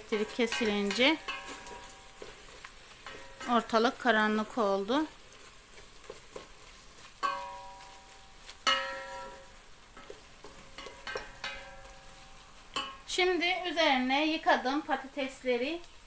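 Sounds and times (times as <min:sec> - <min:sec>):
wooden spoon scraping a pot: 0:00.0 - 0:13.1
faint sizzle: 0:00.0 - 0:16.0
spoon knocking ringing pot: 0:08.7 - 0:09.5, 0:12.8 - 0:13.1.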